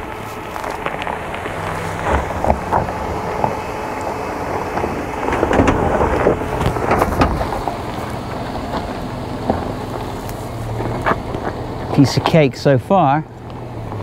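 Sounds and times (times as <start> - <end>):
low engine hum: 0.0 - 14.0
tyres crunching over stones: 0.0 - 14.0.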